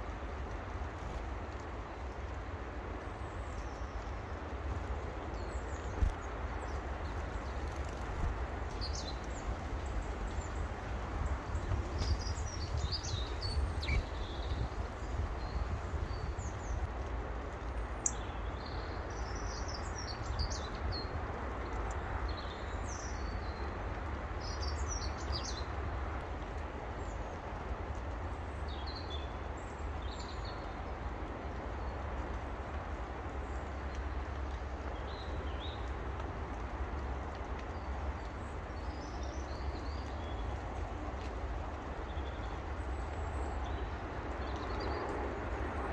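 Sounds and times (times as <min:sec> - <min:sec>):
small birds chirping: 0:03.0 - 0:17.0, 0:17.7 - 0:23.8.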